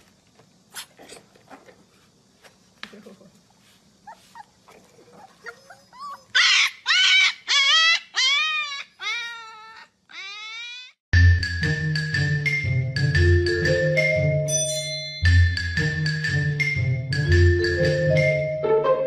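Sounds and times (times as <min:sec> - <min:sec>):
dog whining and crying: 0:04.1 - 0:11.0
marimba-like music: 0:11.2 - 0:19.0.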